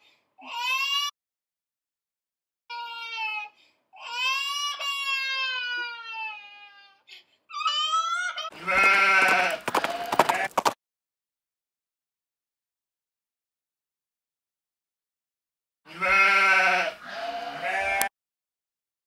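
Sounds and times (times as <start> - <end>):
newborn baby crying: 0.4 - 1.2, 2.7 - 9.5.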